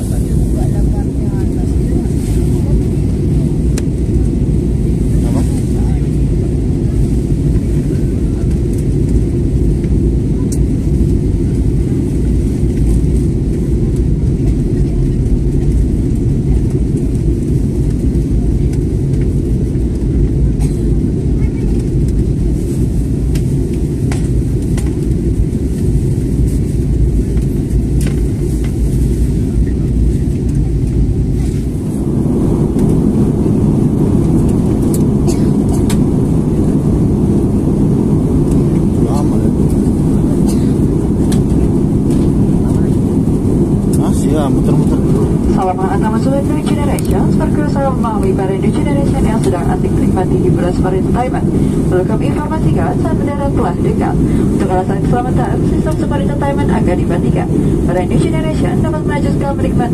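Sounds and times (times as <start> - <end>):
jet engines rumbling: 0.0 - 59.9
rushing air: 22.1 - 59.9.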